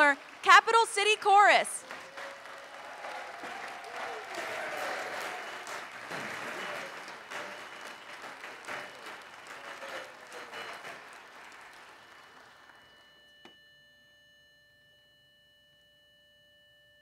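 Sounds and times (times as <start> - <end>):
audience applauding: 0.0 - 13.1
faint steady tone: 12.2 - 17.0.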